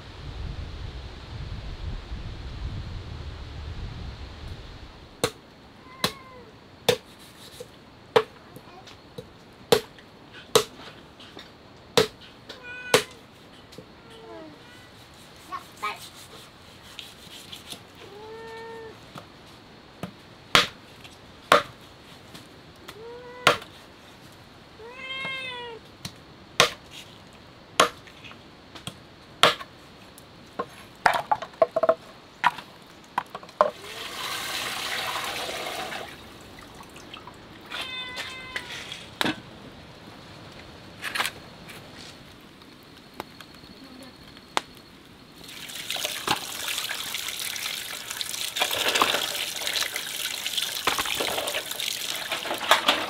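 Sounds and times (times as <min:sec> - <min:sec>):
cat meowing: 0:05.8 - 0:06.5, 0:12.6 - 0:13.2, 0:14.0 - 0:14.9, 0:18.0 - 0:19.0, 0:22.9 - 0:23.6, 0:24.8 - 0:25.8, 0:37.7 - 0:39.0
rushing splashing water: 0:33.7 - 0:38.0, 0:45.4 - 0:53.0.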